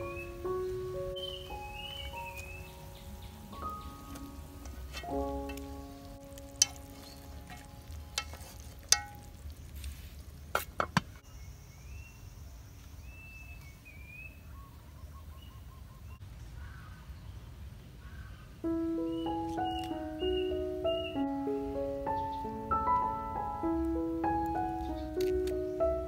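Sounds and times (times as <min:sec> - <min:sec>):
birds chirping: 0:00.0 - 0:08.4, 0:10.4 - 0:26.0
background music: 0:00.0 - 0:08.7, 0:18.7 - 0:26.0
metal pot lid clinking: 0:06.5 - 0:09.4.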